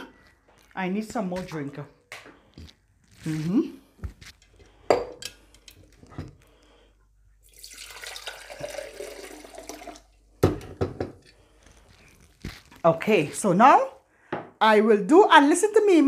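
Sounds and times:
liquid pouring into glass bottle: 7.4 - 10.3.

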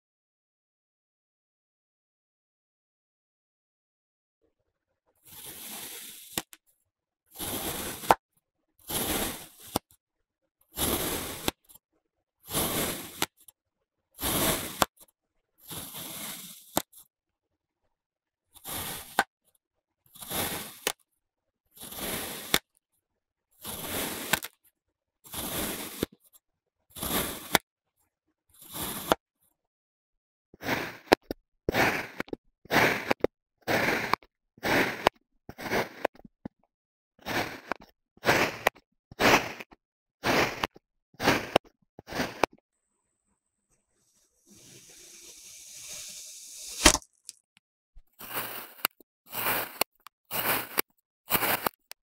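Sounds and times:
crunchy sand cutting strokes: 5.2 - 6.6, 7.3 - 8.2, 8.8 - 9.9, 10.8 - 11.8, 12.4 - 13.4, 14.2 - 15.0, 15.6 - 17.0, 18.6 - 19.3, 20.1 - 21.0, 21.8 - 22.7, 23.6 - 24.6, 25.2 - 26.2, 27.0 - 27.6, 28.6 - 29.2, 30.6 - 36.2, 37.2 - 42.5, 44.0 - 47.5, 48.2 - 52.0.

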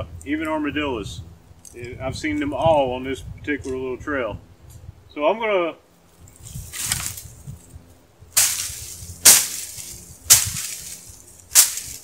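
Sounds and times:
rustle of leaves: 5.9 - 12.0
branches cracking: 6.2 - 7.7, 8.4 - 12.0.

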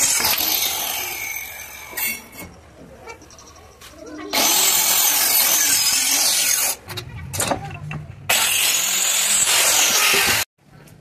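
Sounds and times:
circular saw cutting wood: 4.4 - 6.8, 8.3 - 10.5.

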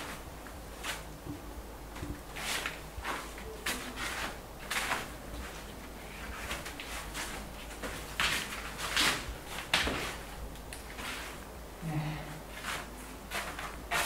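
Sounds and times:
paintbrush swishing on wall: 2.0 - 10.3, 10.9 - 11.5, 12.4 - 14.0.

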